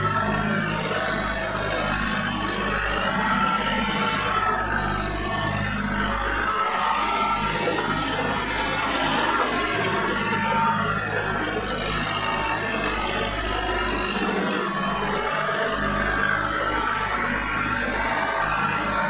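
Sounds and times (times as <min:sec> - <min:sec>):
tractor diesel engine running: 0:02.0 - 0:16.0.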